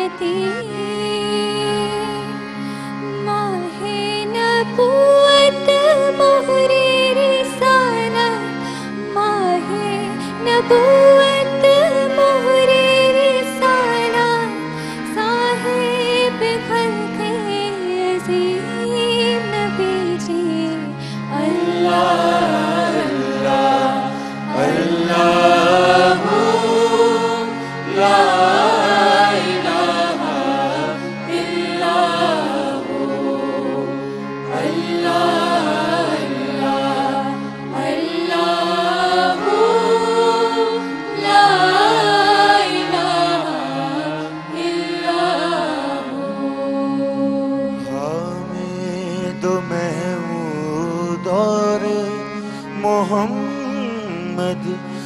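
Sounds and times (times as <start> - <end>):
harmonium drone: 0.0 - 55.0
group singing in chorus: 21.4 - 47.7.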